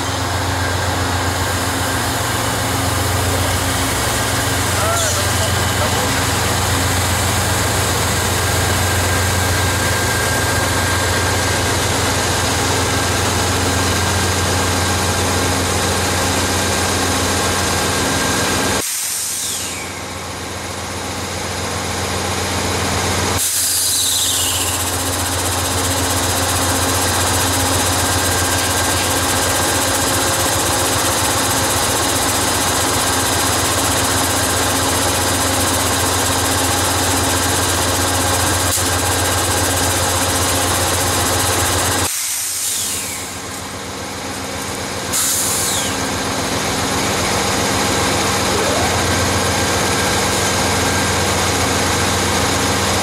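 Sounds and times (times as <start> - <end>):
diesel locomotive engine drone: 0.0 - 53.0
brief falling squeals: 19.2 - 20.1.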